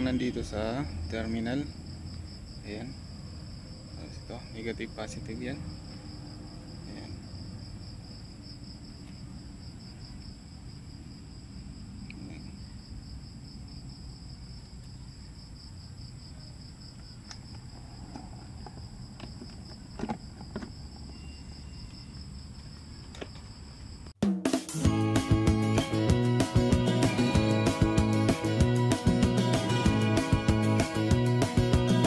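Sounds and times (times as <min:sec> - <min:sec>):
crickets chirping: 0:00.0 - 0:24.2.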